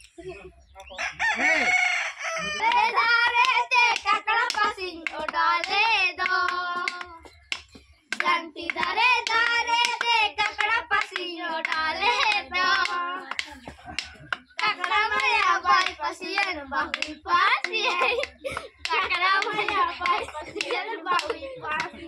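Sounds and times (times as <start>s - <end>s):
rooster crowing: 1.0s - 2.9s
children singing: 2.4s - 7.4s, 8.1s - 22.0s.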